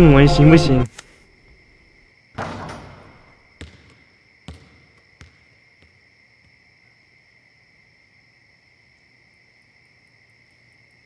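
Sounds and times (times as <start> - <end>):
basketball bouncing on court: 2.4 - 6.6.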